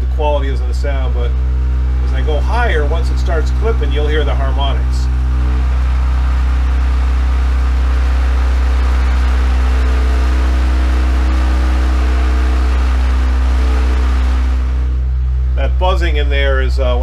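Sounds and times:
harsh distorted buzzing: 0.0 - 17.0
low sine tone hum: 0.0 - 17.0.

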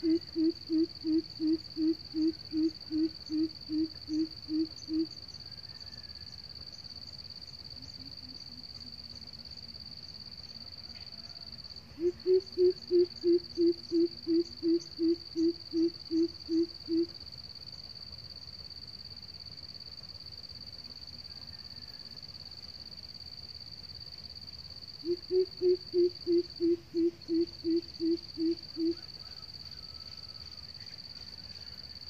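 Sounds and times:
coucal hooting: 0.0 - 5.1, 12.0 - 17.1, 25.0 - 30.0
steady high-pitched whine: 0.0 - 32.0.

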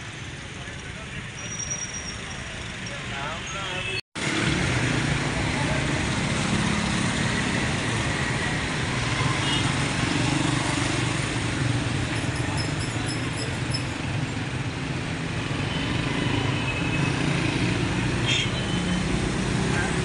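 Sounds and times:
cars and motorcycles passing: 4.2 - 20.0.

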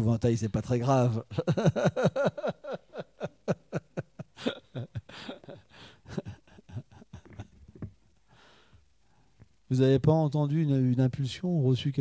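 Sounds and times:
breathy laughter: 1.3 - 7.7
soft breaths: 4.4 - 6.8, 8.2 - 9.6.

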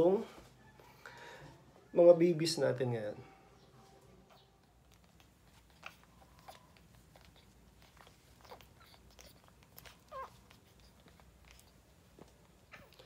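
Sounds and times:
puppies suckling: 4.2 - 13.0
puppy squeak: 5.2 - 11.7.

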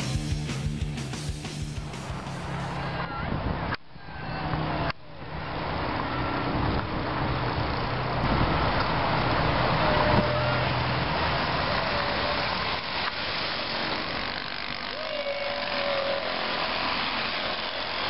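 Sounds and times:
moped engines puttering: 6.9 - 18.0.

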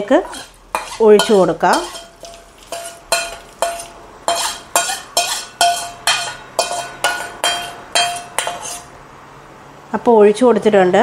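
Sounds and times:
metal spoon clinking on pan: 0.2 - 8.9.

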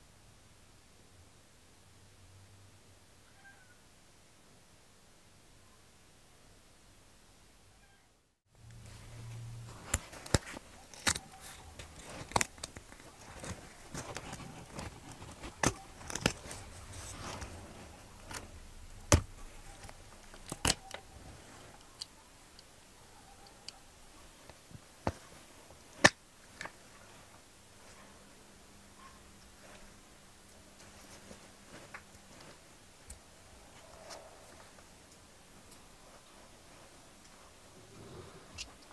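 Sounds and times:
light rustling: 8.6 - 22.2.

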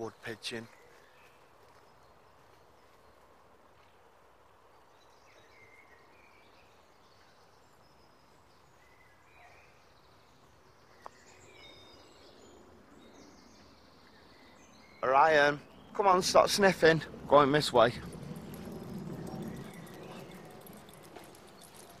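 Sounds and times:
small birds chirping and trilling: 4.7 - 22.0.

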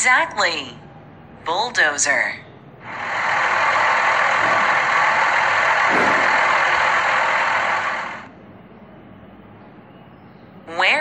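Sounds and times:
heavy engine running: 2.8 - 8.4.

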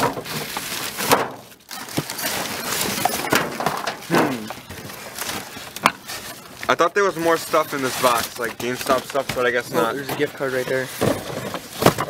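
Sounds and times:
boxes knocking: 0.0 - 0.4, 8.6 - 12.0
packaging crinkling and rustling: 0.0 - 12.0.

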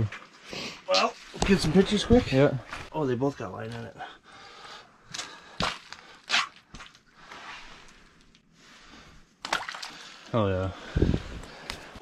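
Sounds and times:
water splashing: 9.4 - 10.2.

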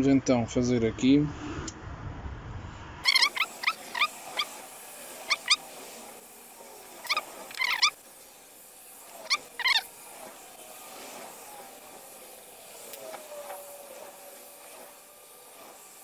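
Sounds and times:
high wavering animal calls: 3.0 - 5.8, 7.0 - 8.0, 9.2 - 10.0
lighter flame hissing: 3.0 - 16.0.

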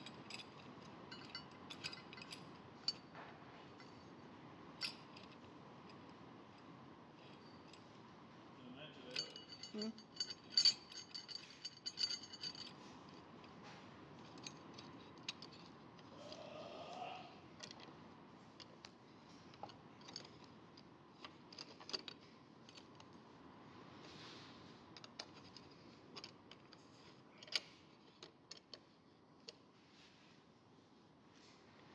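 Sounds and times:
steel parts clinking: 0.0 - 4.1, 4.8 - 7.9, 9.0 - 13.3, 14.2 - 16.3.

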